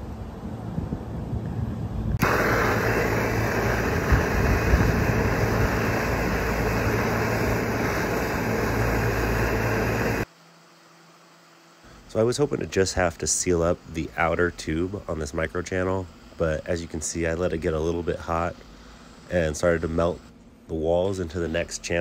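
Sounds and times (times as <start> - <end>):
low wind rumble: 0.0 - 10.2
torch flame hissing: 2.2 - 10.3.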